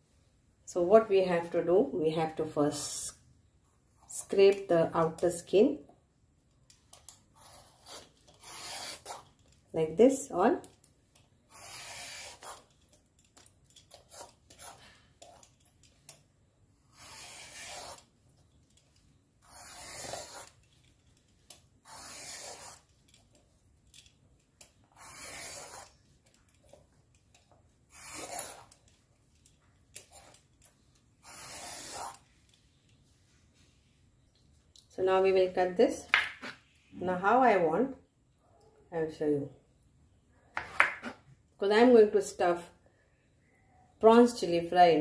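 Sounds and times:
peeler scraping gourd skin: 6.9 - 9.5, 11.4 - 13.0, 13.9 - 15.6, 16.8 - 18.1, 19.4 - 20.7, 21.5 - 23.1, 24.6 - 26.8, 27.9 - 29.0, 31.1 - 32.3.

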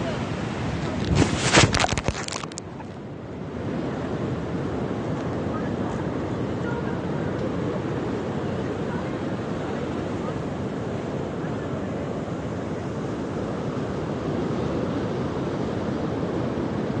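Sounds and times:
ocean surf: 0.0 - 17.0
wind: 0.0 - 17.0.

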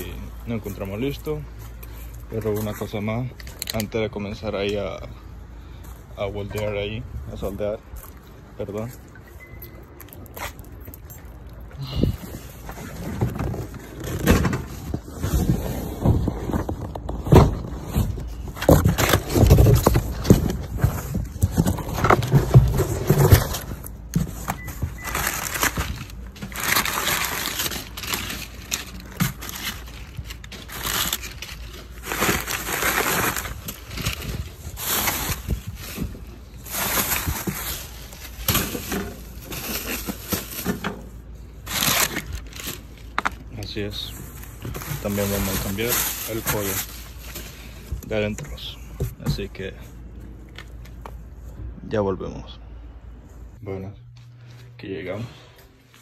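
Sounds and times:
paper and plastic wrap rustling: 0.0 - 5.0, 11.8 - 51.5.

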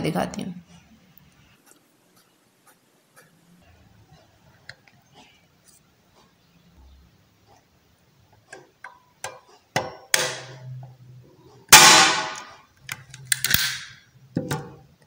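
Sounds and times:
staple gun handle clicking: 13.3 - 13.9.

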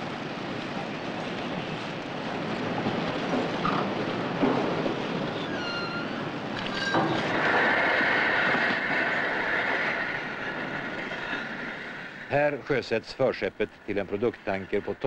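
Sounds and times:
ship hull grinding rumble: 2.1 - 12.4
high squeal: 5.3 - 7.3.

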